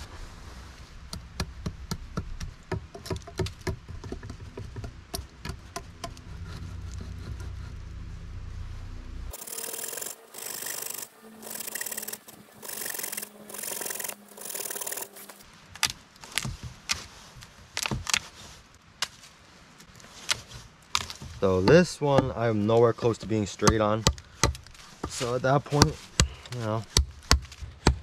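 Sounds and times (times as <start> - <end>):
bow saw cutting wood: 9.3 - 15.4
hand tool chipping wood: 9.3 - 17.0, 23.0 - 28.0.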